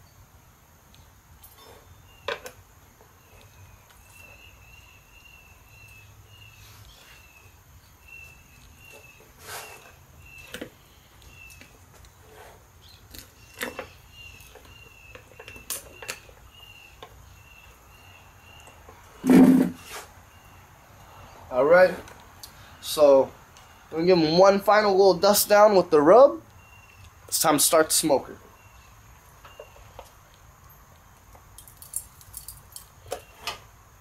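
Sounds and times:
faint high chirping: 0.9s - 19.3s.

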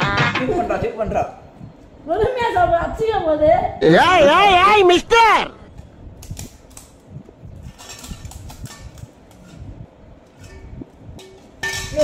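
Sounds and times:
steel bowl clinking: 10.4s - 12.0s.

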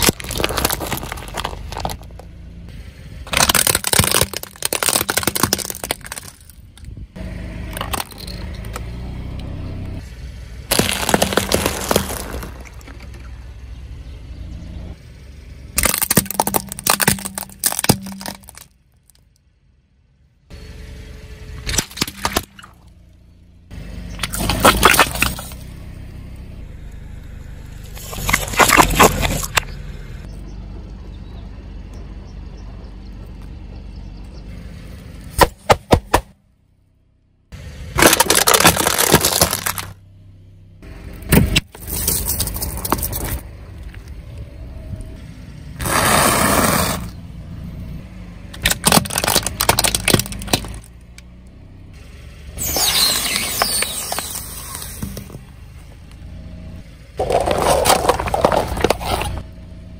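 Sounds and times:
toys crunching under car tyre: 0.0s - 2.4s, 3.3s - 7.0s, 7.7s - 8.9s, 10.7s - 13.2s, 15.8s - 19.2s, 24.1s - 25.8s, 27.8s - 29.8s, 37.9s - 40.0s, 41.3s - 44.4s, 45.8s - 47.2s, 48.5s - 51.3s, 52.6s - 55.5s, 57.2s - 59.5s
tyre rumbling on road: 0.0s - 19.1s, 22.0s - 36.4s, 37.6s - 59.9s.

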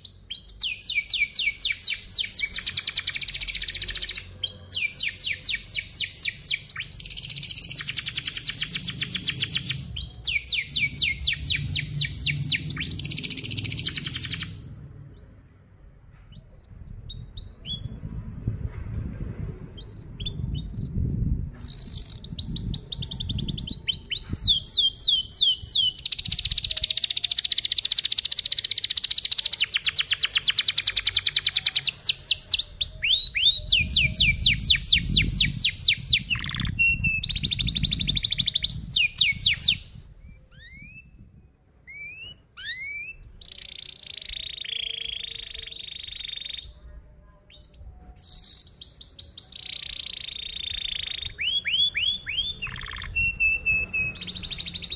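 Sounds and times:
canary singing trills and chirps: 0.0s - 15.4s, 16.3s - 18.4s, 19.8s - 46.9s, 47.5s - 54.9s
low rumble: 11.3s - 24.7s.

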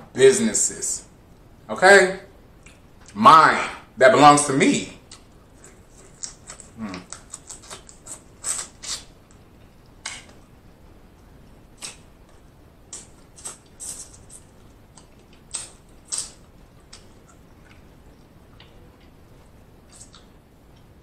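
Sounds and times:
man chewing crab meat: 5.0s - 21.0s.

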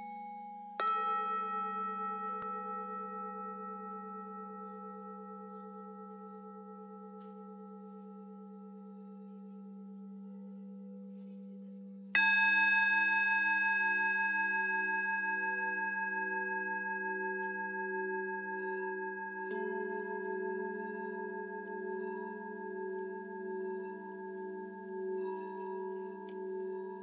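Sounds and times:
bell-like ringing tones: 0.0s - 6.8s, 17.1s - 27.0s.

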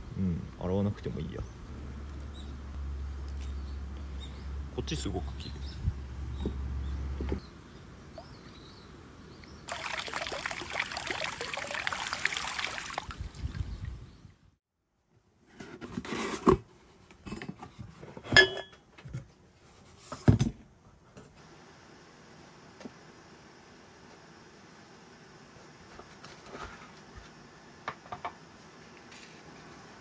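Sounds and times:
running water splashing: 9.7s - 13.8s.

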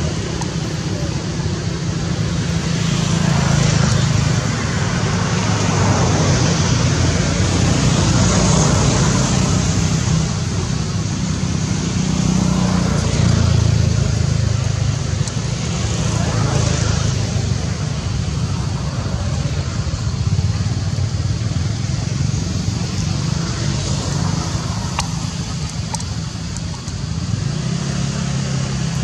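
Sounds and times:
hiss of passing traffic: 0.0s - 29.0s
low engine hum: 0.0s - 29.0s.

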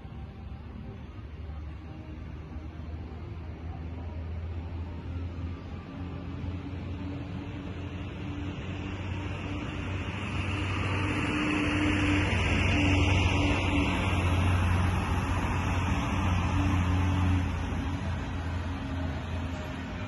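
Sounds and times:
engine humming: 0.0s - 20.0s.

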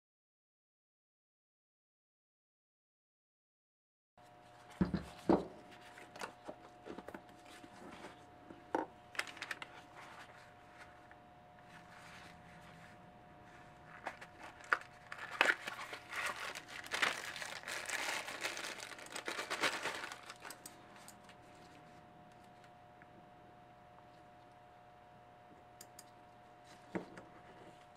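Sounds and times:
faint steady hum: 4.2s - 27.9s
packaging crinkling and tearing: 9.1s - 9.8s, 13.8s - 21.4s.

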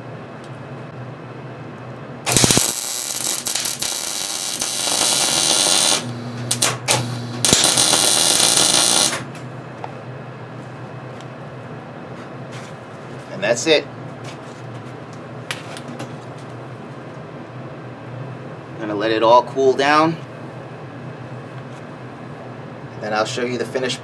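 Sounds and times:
low hum: 2.2s - 12.1s
welding arc crackling: 2.3s - 9.4s.

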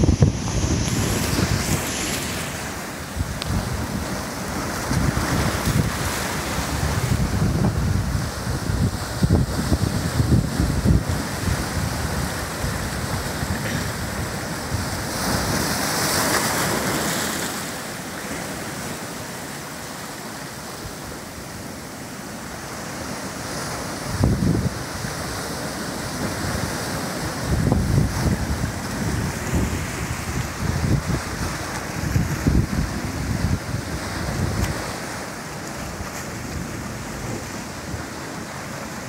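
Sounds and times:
wind buffeting microphone: 0.0s - 15.8s, 24.1s - 25.0s, 26.2s - 35.1s
surf breaking on rocks: 0.0s - 21.5s, 22.5s - 39.0s.

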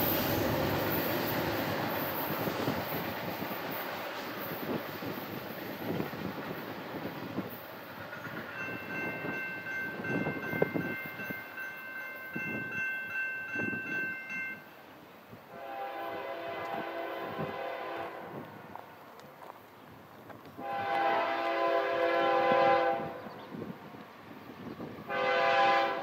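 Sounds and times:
distant train horn blasts: 15.5s - 18.7s, 20.6s - 23.6s, 25.1s - 26.0s.

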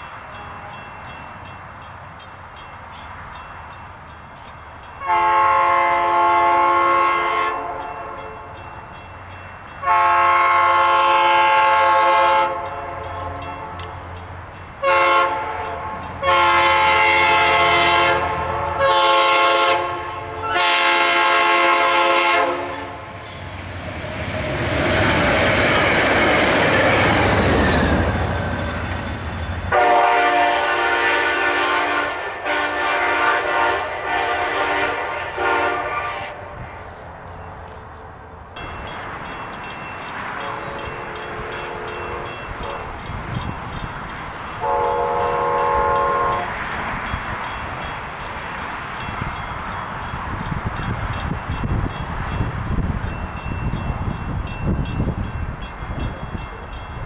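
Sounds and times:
train rushing rumble: 0.0s - 57.0s
locomotive air horn blasts: 5.0s - 8.4s, 9.8s - 13.9s, 14.8s - 23.1s, 29.7s - 36.8s, 40.4s - 43.0s, 44.6s - 46.6s.

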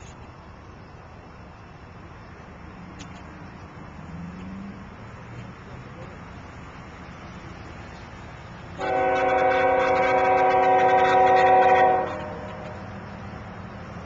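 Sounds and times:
locomotive air horn blast: 8.8s - 12.8s.

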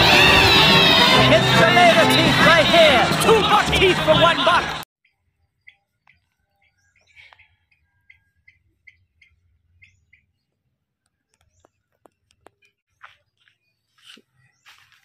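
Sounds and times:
small bird chirping: 5.0s - 14.8s.

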